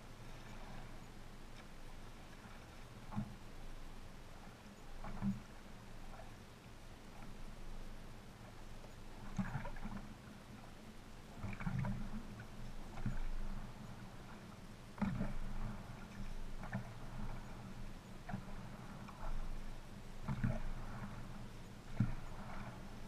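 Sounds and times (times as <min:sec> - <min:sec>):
paddle splashing water: 0:00.0 - 0:23.0
steady low hum: 0:00.0 - 0:23.0
water sloshing against hull: 0:00.0 - 0:23.0.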